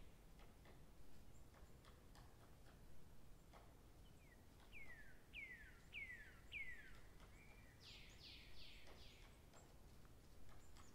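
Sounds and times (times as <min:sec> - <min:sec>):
bird singing faintly: 0:03.3 - 0:10.9.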